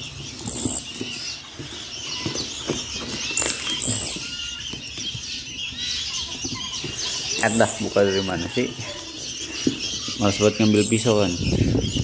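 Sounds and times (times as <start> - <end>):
baskets and box rustling: 0.0 - 11.5
baby birds chirping: 0.0 - 12.0.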